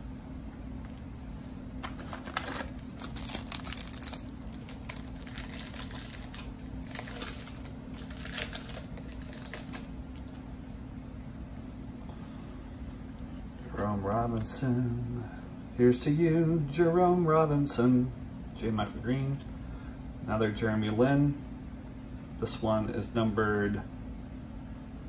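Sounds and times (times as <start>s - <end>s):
steady low hum: 0.0s - 25.0s
cards rustling: 1.2s - 10.5s
foil pack crinkling: 1.8s - 10.5s.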